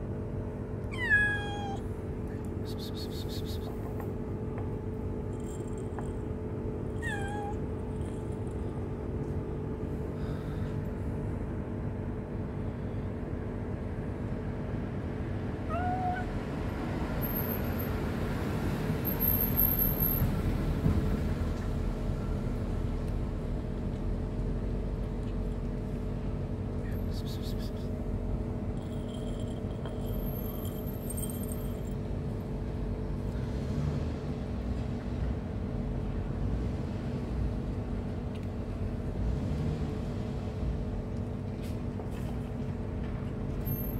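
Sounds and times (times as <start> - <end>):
low background hum: 0.0 - 16.7, 21.9 - 33.4
kitten meowing: 0.9 - 1.8, 7.0 - 7.6, 15.7 - 16.3.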